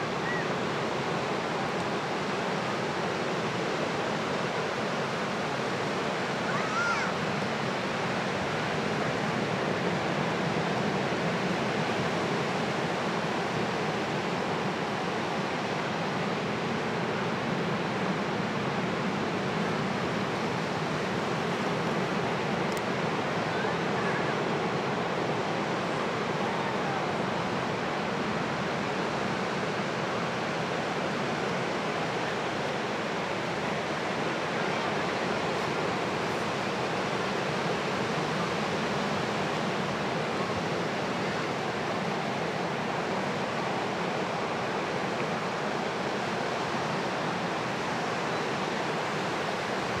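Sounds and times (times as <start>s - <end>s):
ocean waves breaking: 0.0s - 50.0s.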